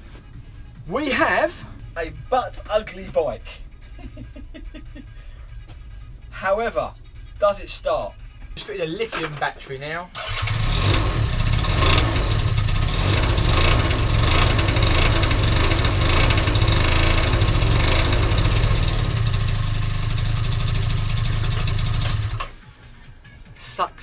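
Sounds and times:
scooter engine starting and running: 0:10.1 - 0:22.6.

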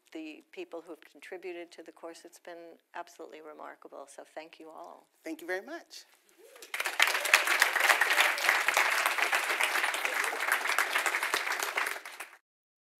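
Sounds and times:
audience applauding: 0:06.4 - 0:12.4.

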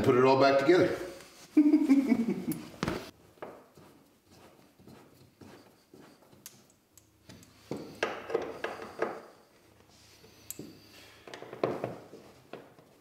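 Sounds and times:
knocking and rustling: 0:10.6 - 0:13.0.

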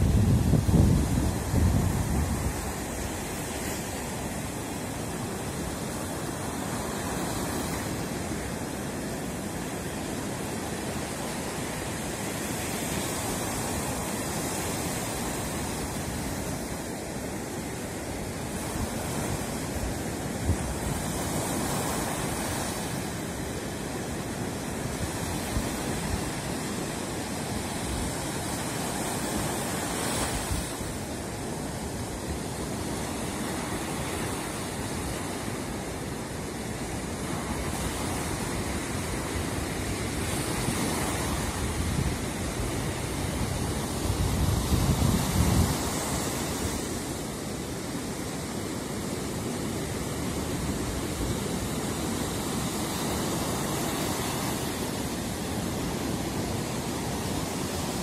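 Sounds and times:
surf washing up beach: 0:00.0 - 0:58.0.

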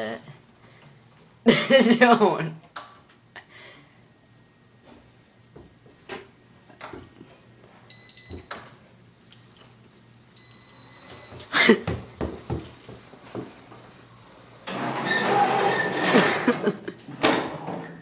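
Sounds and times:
wheelchair electronic beep: 0:07.9 - 0:08.6, 0:10.4 - 0:11.5.

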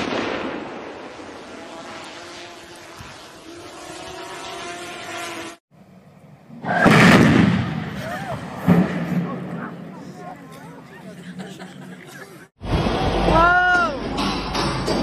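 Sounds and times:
explosion rumble: 0:06.7 - 0:09.9, 0:12.6 - 0:13.4
loud burst of noise: 0:12.6 - 0:13.6.

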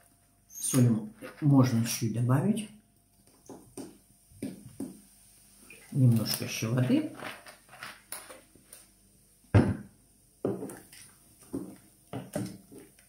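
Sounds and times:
wooden spoon scraping metal pot: 0:00.5 - 0:02.0, 0:07.0 - 0:08.4.

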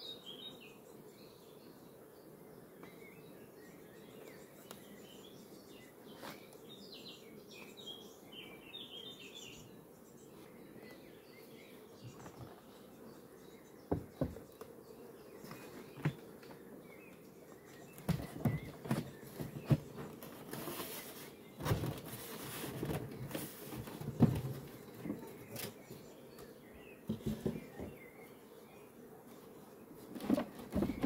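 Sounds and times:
faint buzz of bees: 0:00.0 - 0:31.0
knocks of hive parts: 0:13.9 - 0:14.5, 0:18.0 - 0:20.2
scraping rustle: 0:18.0 - 0:25.9, 0:30.0 - 0:31.0.

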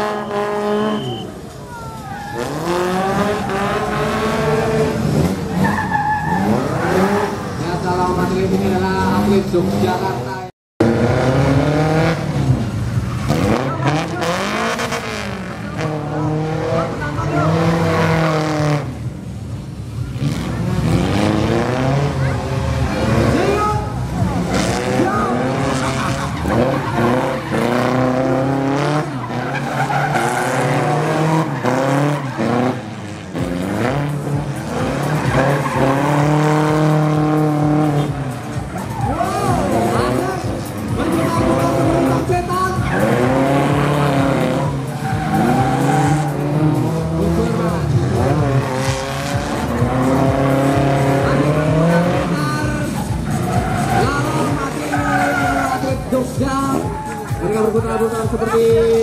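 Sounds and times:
tyres skidding: 0:00.0 - 0:59.0
engine revving hard: 0:02.4 - 0:05.7, 0:10.8 - 0:19.0, 0:20.1 - 0:56.1.

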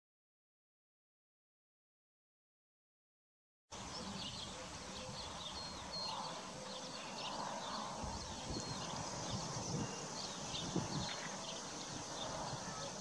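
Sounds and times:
small birds chirping: 0:03.7 - 0:13.0.

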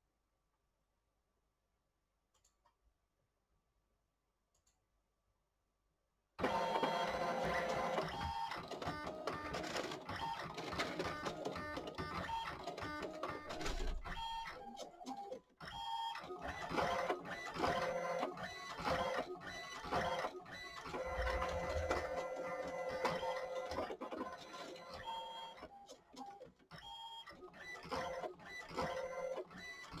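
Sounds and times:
printer motors and clatter: 0:06.4 - 0:30.0.

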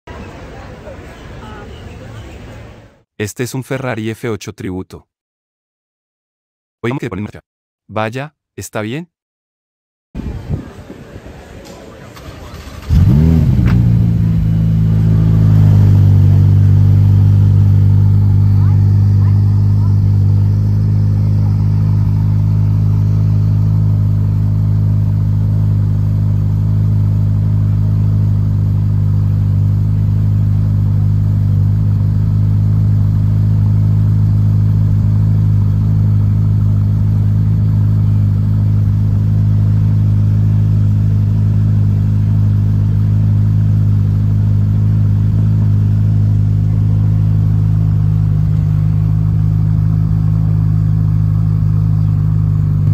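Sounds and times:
car engine idling: 0:11.3 - 0:52.9.

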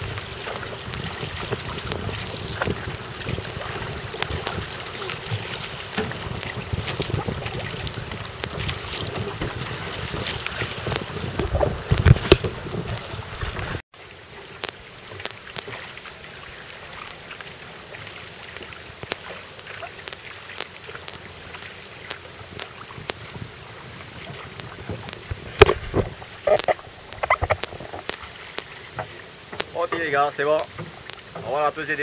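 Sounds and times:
sharp ticks: 0:00.0 - 0:09.7, 0:10.8 - 0:13.1, 0:14.6 - 0:15.8, 0:17.0 - 0:17.4, 0:18.9 - 0:23.4, 0:24.2 - 0:28.8, 0:29.5 - 0:31.5
paddle splashing: 0:00.0 - 0:32.0
water hissing along hull: 0:00.0 - 0:32.0.

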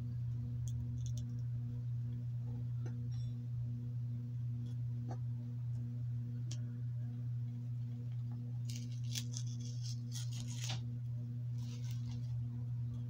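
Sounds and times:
low electrical hum with buzz: 0:00.0 - 0:13.0
plastic packaging rustling: 0:11.6 - 0:12.3.

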